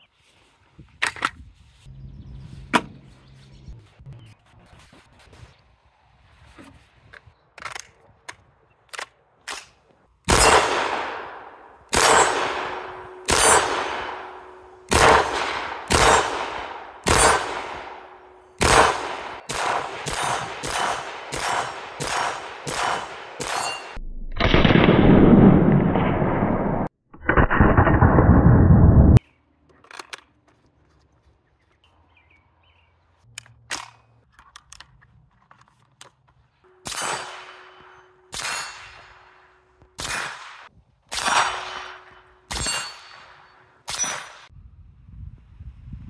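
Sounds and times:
suppressed rifle shots: 10.3s - 23.7s.

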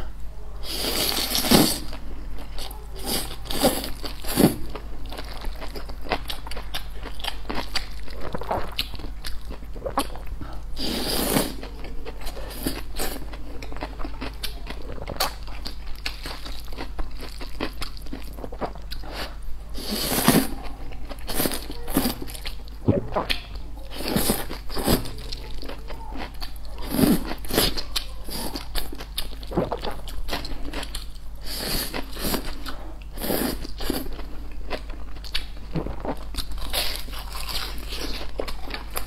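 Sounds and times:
wet chewing and crunching: 0.9s - 39.0s
slurping noodles: 10.8s - 11.6s.

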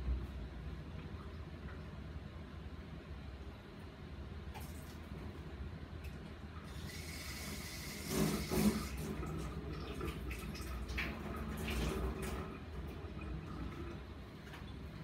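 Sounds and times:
water running: 4.5s - 15.0s.

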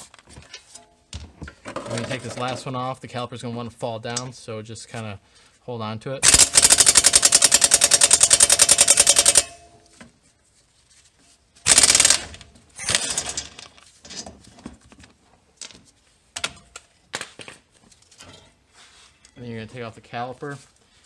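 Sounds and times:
impact wrench hammering: 6.2s - 9.8s, 11.7s - 13.4s.

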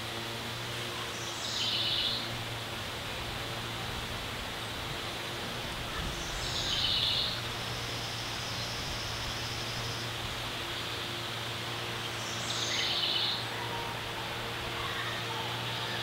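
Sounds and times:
wind in leaves: 0.0s - 16.0s
bird chirping: 6.2s - 10.1s, 12.0s - 13.5s.

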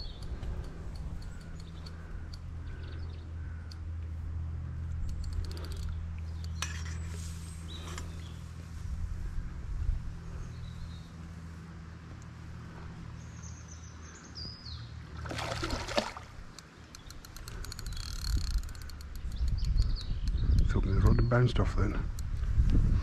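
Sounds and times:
steady low rumble: 0.0s - 23.0s
fish splashing at surface: 15.1s - 16.4s
fast ticks: 16.6s - 20.7s.

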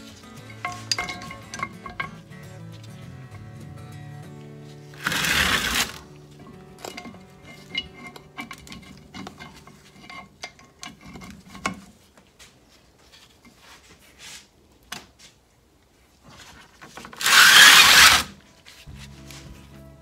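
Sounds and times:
heavy metal housing scraping: 4.9s - 6.0s.

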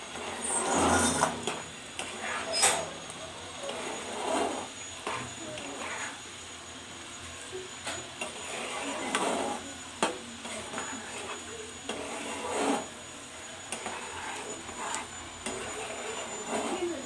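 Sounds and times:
spatula scraping wet gravy: 0.1s - 2.8s, 3.7s - 6.2s, 8.2s - 13.0s, 13.7s - 17.0s.

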